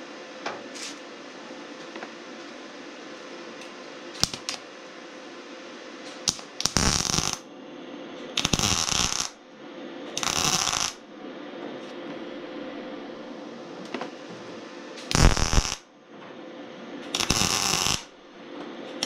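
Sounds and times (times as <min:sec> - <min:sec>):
welder crackling: 0:04.2 - 0:04.6, 0:06.2 - 0:07.4, 0:08.3 - 0:09.4, 0:10.1 - 0:11.0, 0:15.0 - 0:15.8, 0:17.0 - 0:19.0.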